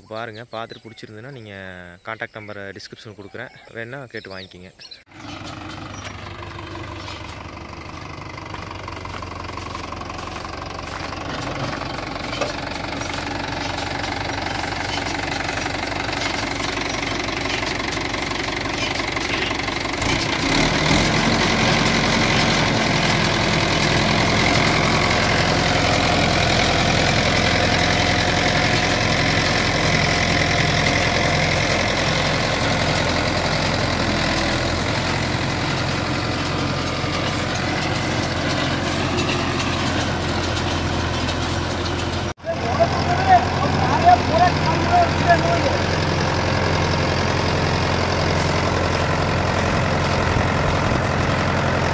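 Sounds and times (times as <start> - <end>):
tractor diesel engine running: 4.4 - 51.9
straw baler machinery: 5.1 - 51.9.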